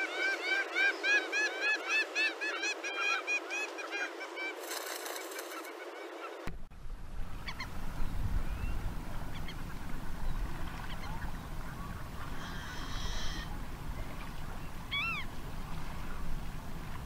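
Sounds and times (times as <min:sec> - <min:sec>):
gull nasal calls: 0:10.8 - 0:13.5.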